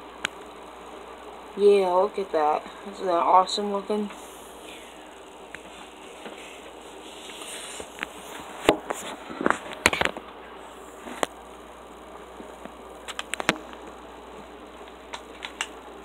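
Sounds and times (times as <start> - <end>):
steady hiss: 0.0 - 16.0
sharp clicks and taps: 14.9 - 15.8.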